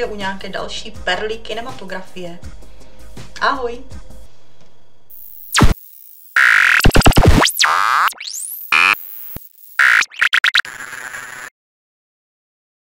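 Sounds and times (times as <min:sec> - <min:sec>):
digital glitch stutters: 0:05.1 - 0:11.5.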